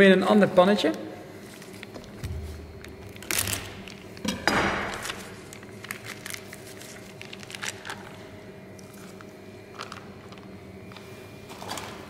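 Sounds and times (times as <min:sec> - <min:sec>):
plastic bag crinkling: 0:01.5 - 0:04.2, 0:04.8 - 0:11.0.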